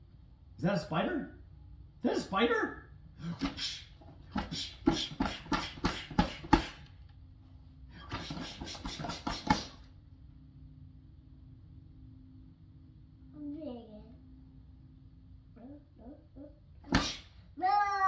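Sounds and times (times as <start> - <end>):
faint steady low hum: 9.8 - 18.0.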